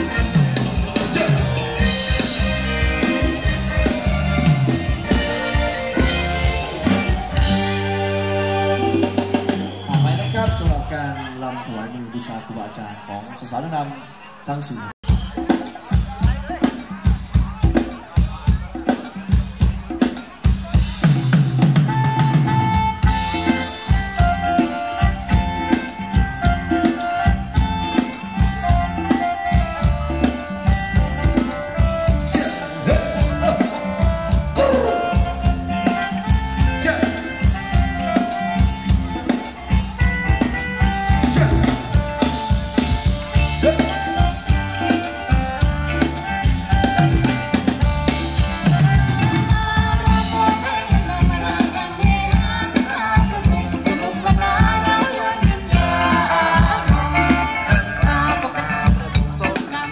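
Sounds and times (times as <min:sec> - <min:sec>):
drum kit beat: 0:00.0 - 0:10.9, 0:15.0 - 0:59.9
amplified dance band: 0:00.0 - 0:59.9
person singing: 0:31.8 - 0:39.7, 0:48.4 - 0:59.9.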